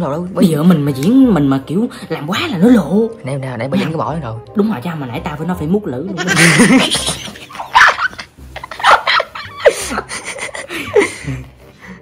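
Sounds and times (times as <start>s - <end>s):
man laughing: 6.3s - 11.5s.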